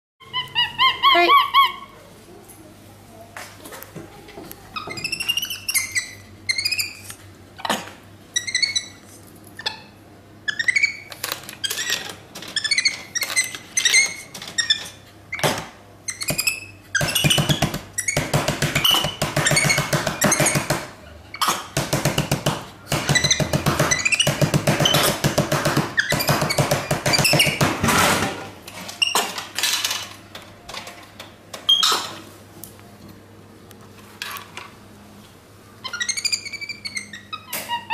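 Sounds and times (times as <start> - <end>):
monkey calling: 0.2 - 2.0, 7.6 - 9.0, 35.8 - 37.9.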